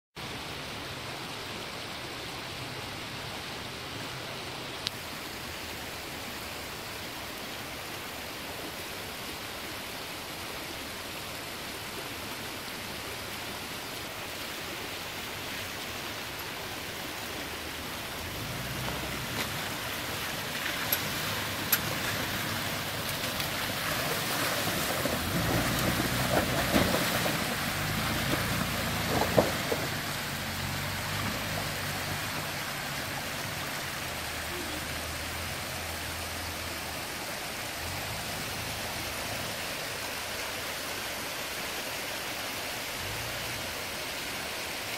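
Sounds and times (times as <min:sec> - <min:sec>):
creek rushing over stones: 0:00.2 - 0:44.9
truck engine humming: 0:17.6 - 0:39.5
rocks knocking under tyres: 0:18.8 - 0:30.3.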